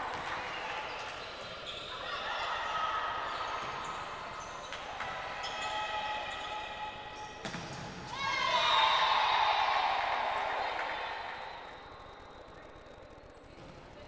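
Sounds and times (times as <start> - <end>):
echoing hall hum: 0.0 - 14.0
volleyball being struck: 7.4 - 8.0.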